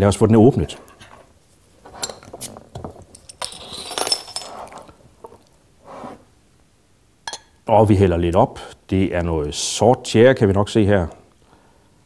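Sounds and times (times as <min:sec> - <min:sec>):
glass clattering: 0:03.1 - 0:04.8
beer glasses clinking: 0:07.3 - 0:07.6.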